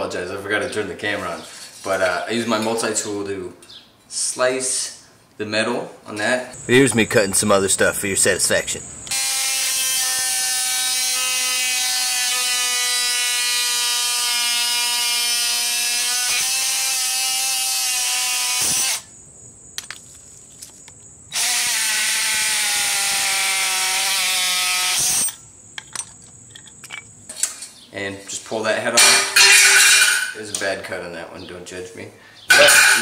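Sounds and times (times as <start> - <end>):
multi-tool sawing plastic: 9.1 - 19.0.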